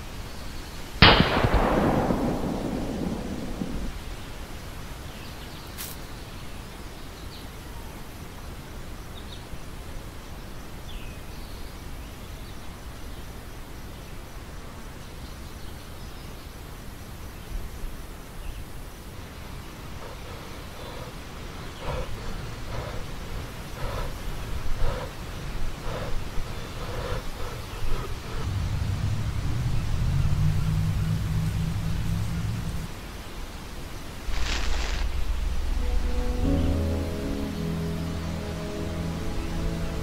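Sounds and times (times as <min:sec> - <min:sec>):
steady outdoor hiss: 0:00.0 - 0:40.0
loud rumbling bang: 0:01.0 - 0:04.2, 0:34.3 - 0:36.8.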